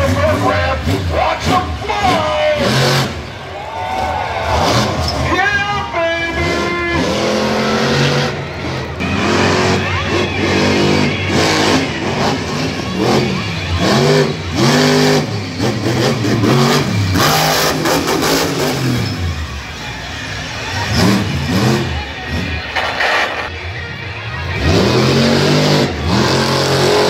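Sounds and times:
monster truck engine revving: 0.0s - 27.0s
burst of harsh noise: 22.7s - 23.6s.

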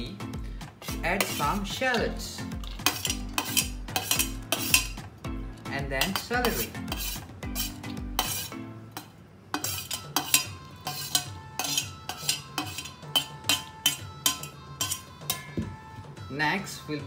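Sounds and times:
metal spoon scraping steel plate: 0.8s - 15.6s
spoon clinking on metal: 1.2s - 5.0s, 6.0s - 15.5s.

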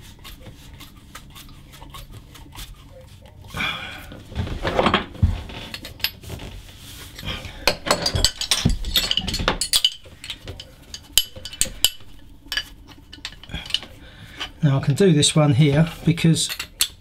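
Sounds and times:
brass fittings clinking: 4.8s - 6.4s, 7.1s - 14.6s, 16.1s - 17.0s
metal spanner knocking: 7.6s - 14.5s.

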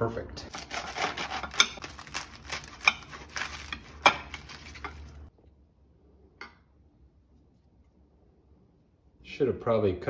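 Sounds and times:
knife slicing lettuce: 0.5s - 5.0s.

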